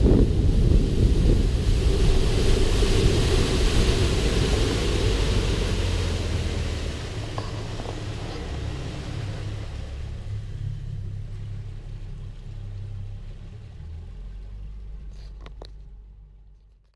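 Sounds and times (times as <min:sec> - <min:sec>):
wind noise: 0:00.0 - 0:13.1
boat engine rumble: 0:00.0 - 0:16.9.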